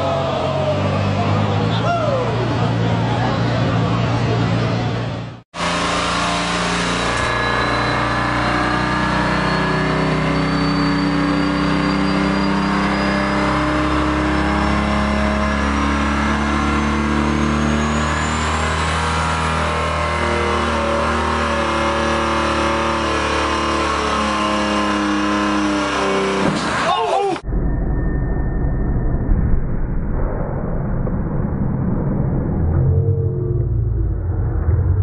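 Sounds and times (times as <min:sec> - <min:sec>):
engine running hard under load: 0:00.0 - 0:26.9
high turbo whistle: 0:05.6 - 0:26.3.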